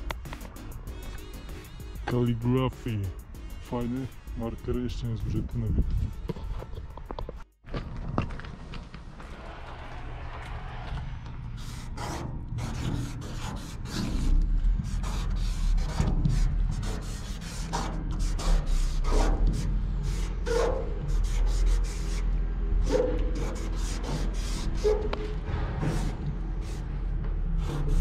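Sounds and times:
marker scraping on metal door: 11.5 - 28.0.

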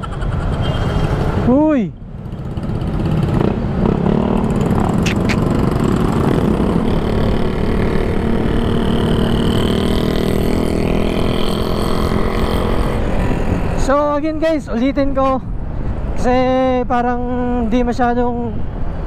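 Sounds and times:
other motorcycles: 0.0 - 16.5
road noise: 0.0 - 19.0
brief sharp high sounds: 5.0 - 5.5.

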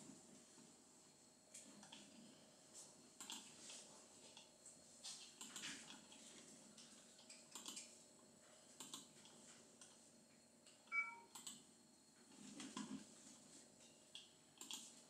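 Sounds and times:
computer mouse clicks: 3.2 - 3.5, 5.4 - 6.2, 6.8 - 7.9, 8.8 - 10.0, 10.7 - 11.6, 14.1 - 14.9.

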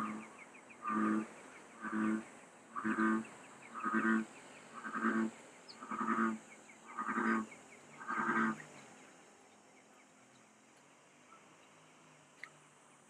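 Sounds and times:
bullfrog croaking: 0.0 - 8.8.

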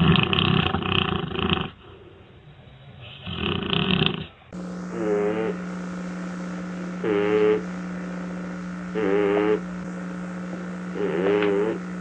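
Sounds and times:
dog snoring: 0.0 - 1.8, 3.2 - 4.3, 4.9 - 5.6, 7.0 - 7.7, 8.9 - 9.7, 10.9 - 11.8
electrical hum: 4.5 - 12.0.

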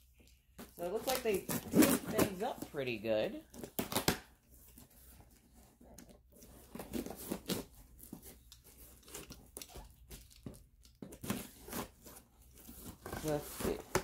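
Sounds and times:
tape and cardboard tearing: 0.6 - 2.7, 3.5 - 5.0, 5.8 - 14.0
knife cutting packing tape: 0.9 - 2.6, 3.5 - 4.3, 6.4 - 14.0.

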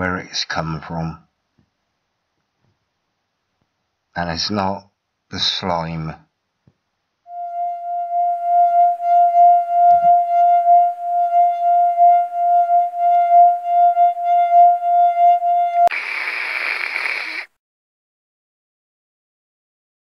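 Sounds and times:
pulsing high held note: 7.3 - 16.0
static-like hiss: 15.9 - 17.6.

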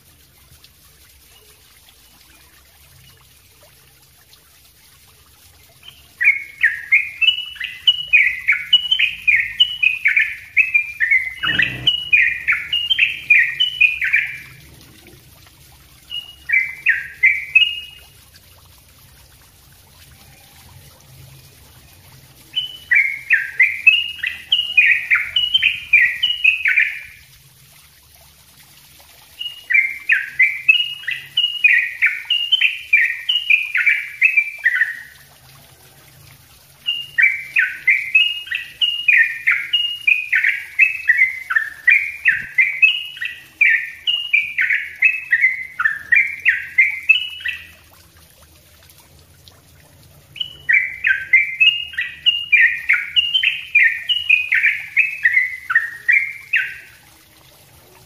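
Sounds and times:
bird singing rapid song: 5.8 - 14.6, 16.1 - 18.0, 22.5 - 27.2, 29.4 - 35.1, 36.8 - 47.8, 50.4 - 56.9.

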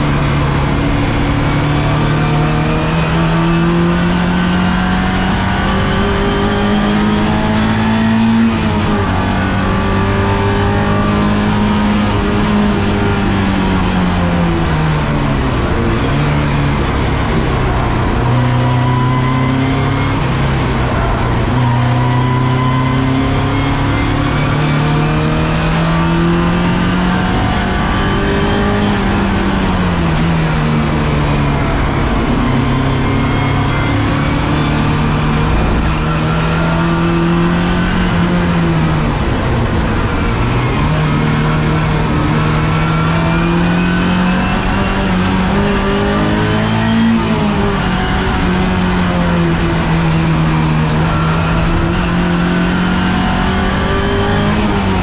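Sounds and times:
race car engine under load: 0.0 - 55.0.

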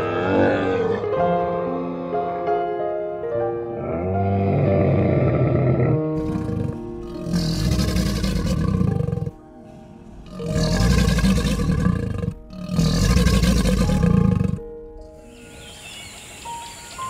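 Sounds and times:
background music: 0.0 - 17.0
crocodile growling: 3.8 - 9.4, 10.2 - 14.6.

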